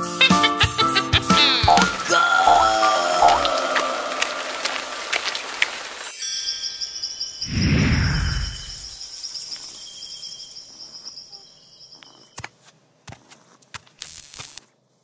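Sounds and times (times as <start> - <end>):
sharp clicks and taps: 1.7 - 2.6
crickets chirping: 4.7 - 13.7.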